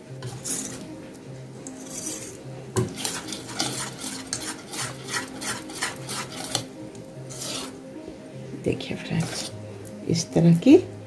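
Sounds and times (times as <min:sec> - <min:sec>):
whisk scraping metal bowl: 0:00.2 - 0:00.8, 0:01.7 - 0:06.6, 0:07.3 - 0:07.8, 0:09.2 - 0:09.5.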